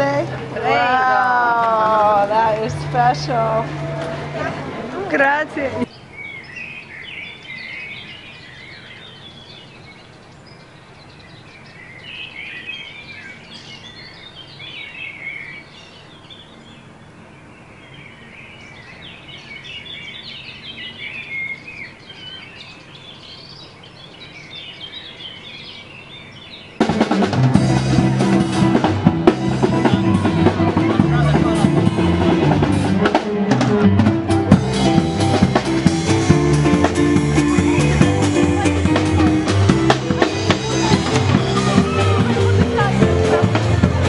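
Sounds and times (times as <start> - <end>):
small birds chirping: 5.8 - 27.2
loud music with drums and bass: 26.8 - 44.0.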